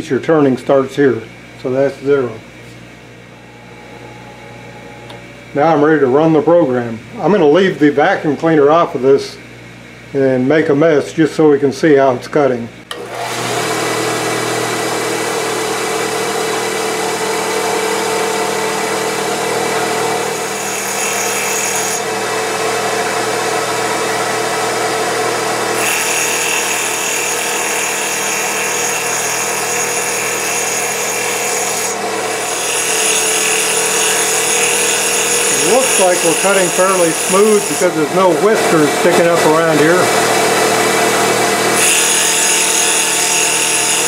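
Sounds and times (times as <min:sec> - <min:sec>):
lathe motor humming with whine: 0:01.3 - 0:08.6, 0:12.9 - 0:44.0
hiss of wood cutting: 0:31.5 - 0:40.7.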